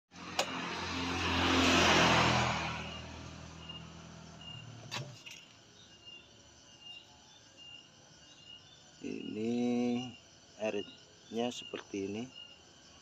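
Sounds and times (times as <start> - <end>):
motor vehicle passing by: 0.1 - 5.3.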